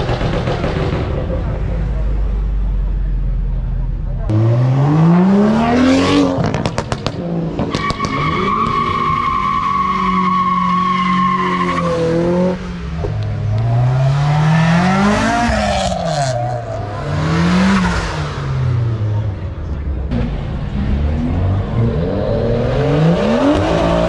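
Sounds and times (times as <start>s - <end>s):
car engine revving: 0.0s - 24.0s
exhaust pops and crackles: 6.4s - 8.2s.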